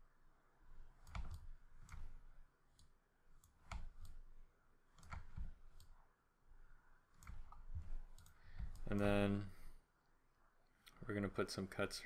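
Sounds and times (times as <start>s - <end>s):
computer mouse clicks: 1.0s - 4.3s, 4.9s - 6.0s, 7.1s - 9.2s.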